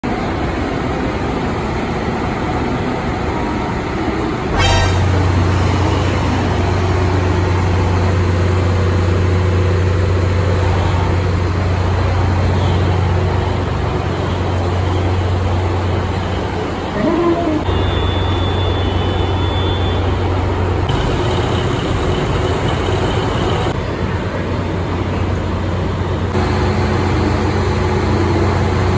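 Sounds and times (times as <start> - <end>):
diesel railcar engine humming: 0.0 - 28.9
short buzz: 4.5 - 6.3
strong low drone: 4.5 - 8.8.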